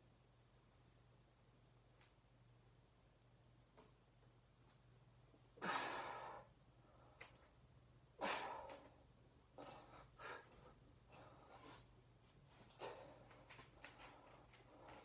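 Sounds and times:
man breathing heavily: 8.2 - 12.0.

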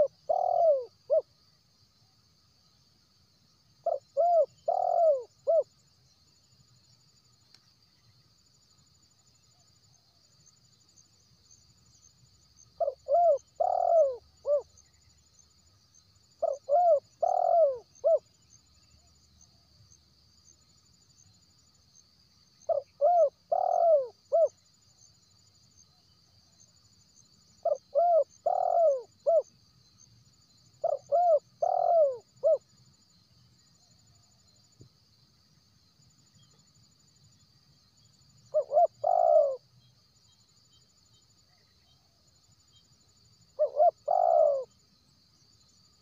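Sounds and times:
dove cooing: 0.0 - 1.3, 3.8 - 5.7, 12.8 - 14.7, 16.4 - 18.2, 22.7 - 24.5, 27.6 - 29.5, 30.8 - 32.6, 38.5 - 39.6, 43.6 - 44.7.

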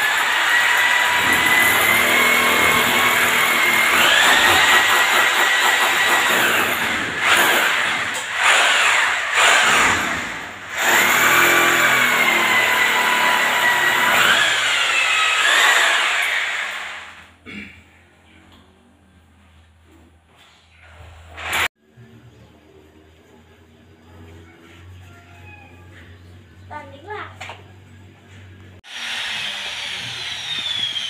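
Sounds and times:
electric drill boring into masonry: 0.0 - 17.3, 28.8 - 31.0.

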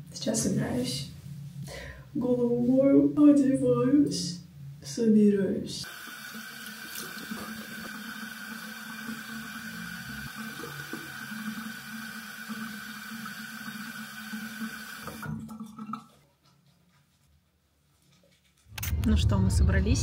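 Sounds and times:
tap water running into sink: 5.9 - 16.1.

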